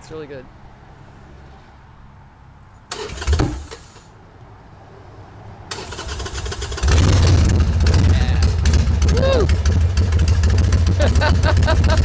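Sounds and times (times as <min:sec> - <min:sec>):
motor trike engine starting: 0:02.9 - 0:04.0, 0:05.7 - 0:12.0.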